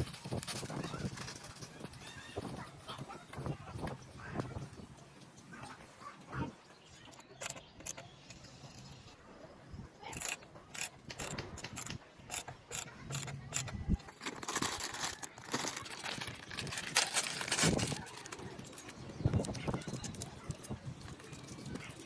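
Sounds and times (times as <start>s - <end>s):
metallic clicks of bolts turning: 7.1s - 9.0s, 10.1s - 13.8s.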